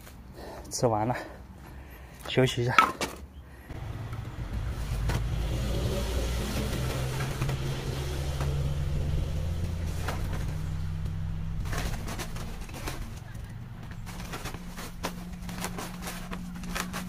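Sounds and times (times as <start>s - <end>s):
car engine running: 3.7s - 17.0s
firewood knocking in plastic sack: 8.4s - 17.0s.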